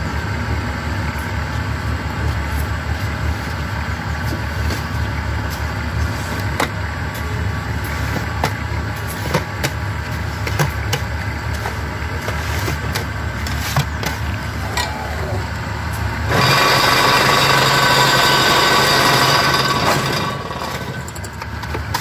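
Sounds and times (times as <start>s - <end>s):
block making machine drone: 9.3s - 22.0s.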